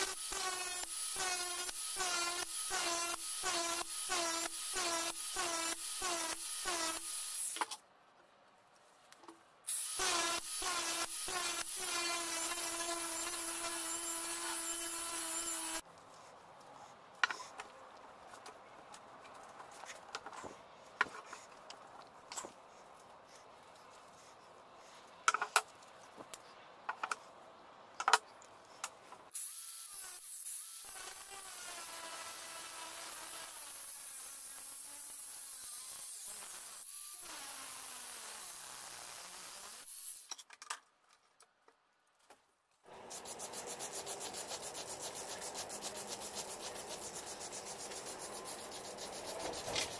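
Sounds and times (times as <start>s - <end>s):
angle grinder cutting steel: 0.0s - 7.6s, 9.7s - 15.8s, 29.4s - 40.3s.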